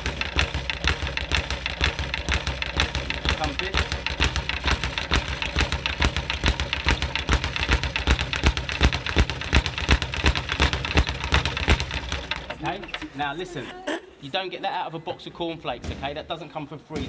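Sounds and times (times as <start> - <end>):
speed bag rapid rattle: 0.0 - 13.5.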